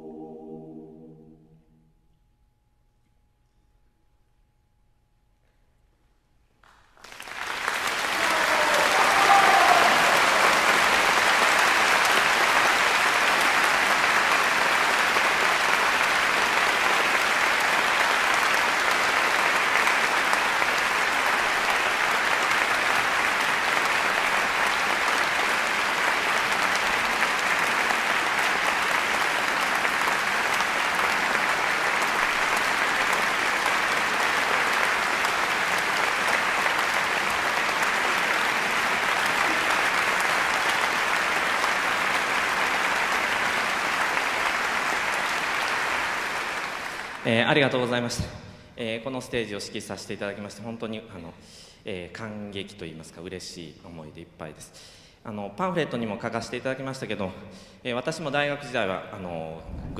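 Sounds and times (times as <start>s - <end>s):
audience applauding: 6.7s - 48.0s.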